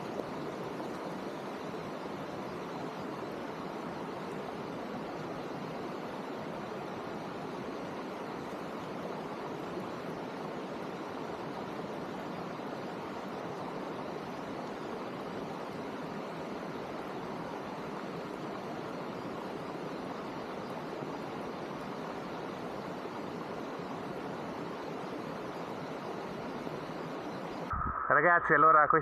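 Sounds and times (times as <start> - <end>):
rushing water hiss: 0.0 - 27.7.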